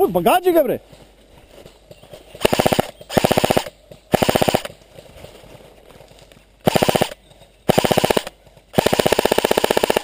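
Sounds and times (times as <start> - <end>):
airsoft rifle bursts: 2.4 - 4.7, 6.6 - 10.0.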